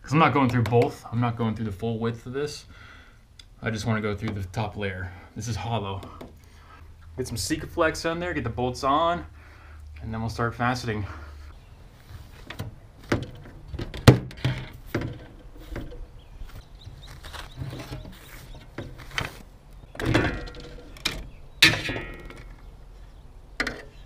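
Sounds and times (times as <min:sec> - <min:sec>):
metal brackets and tools knocking: 0:17.7 - 0:22.7, 0:23.6 - 0:24.0.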